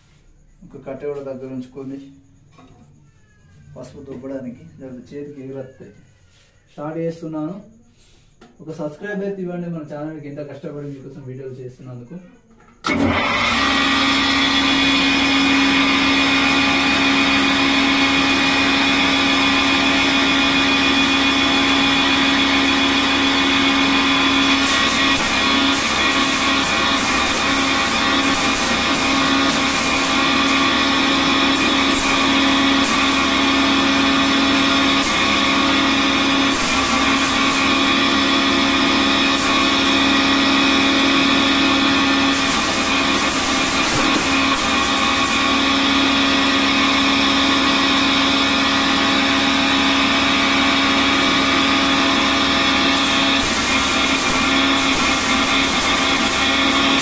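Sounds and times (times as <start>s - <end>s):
flour mill grinding drone: 11.6s - 57.0s.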